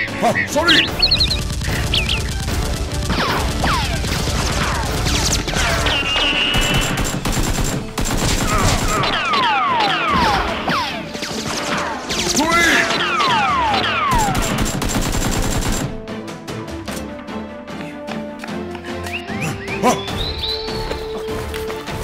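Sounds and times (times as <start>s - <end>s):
background music: 0.0s - 22.0s
automatic gunfire effects: 1.1s - 10.6s, 12.8s - 16.0s.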